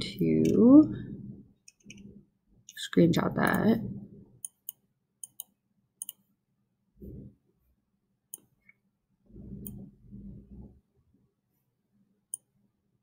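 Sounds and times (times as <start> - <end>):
dull low rumble: 0.5 - 1.5, 9.3 - 10.8
computer mouse clicks: 1.6 - 2.1, 4.4 - 6.2, 9.6 - 9.8.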